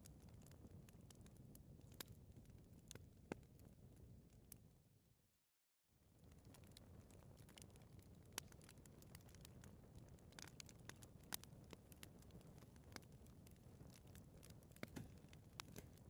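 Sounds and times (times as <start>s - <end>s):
fire crackling and popping: 0.0s - 4.7s, 6.0s - 16.0s
fire rumbling: 6.1s - 16.0s.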